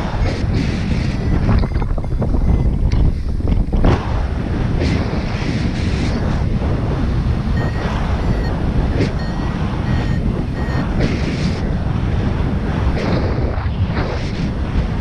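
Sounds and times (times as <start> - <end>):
wind on microphone: 0.0 - 15.0
variometer high beeps: 1.0 - 2.9, 7.5 - 11.0.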